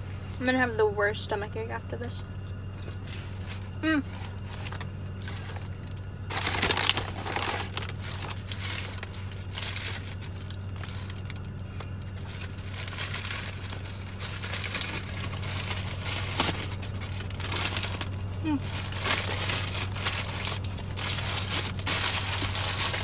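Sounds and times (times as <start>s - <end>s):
paper wrapper crinkling: 6.3s - 23.0s.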